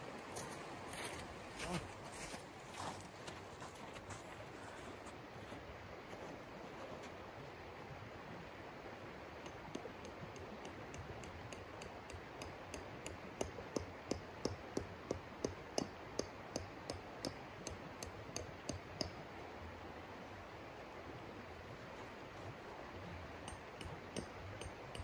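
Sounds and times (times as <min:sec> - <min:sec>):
tent stake hammered into ground: 0:09.5 - 0:19.2, 0:23.5 - 0:25.0.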